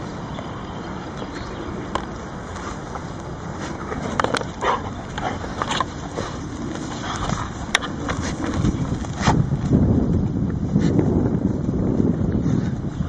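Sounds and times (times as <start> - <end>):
dogs digging in turf: 2.2 - 9.8, 10.7 - 11.0.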